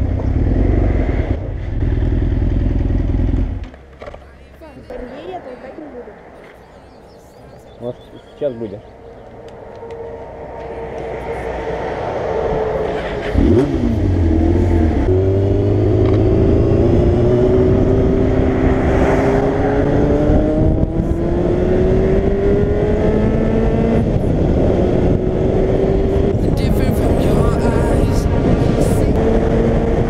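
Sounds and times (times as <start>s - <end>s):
motorcycle engine accelerating: 0.0s - 4.0s, 8.8s - 30.0s
wind rushing over camera: 15.9s - 30.0s.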